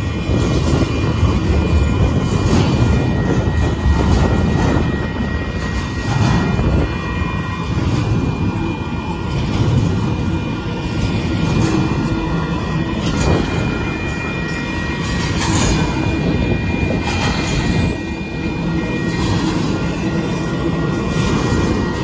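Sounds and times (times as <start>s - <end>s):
freight train rumbling and clattering: 0.0s - 22.0s.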